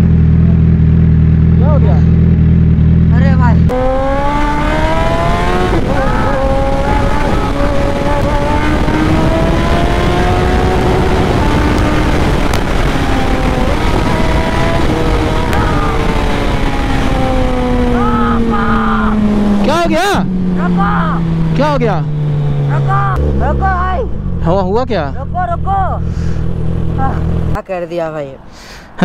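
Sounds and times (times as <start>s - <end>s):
motorcycle engine accelerating: 0.0s - 27.7s
wind rush on microphone: 3.7s - 19.7s.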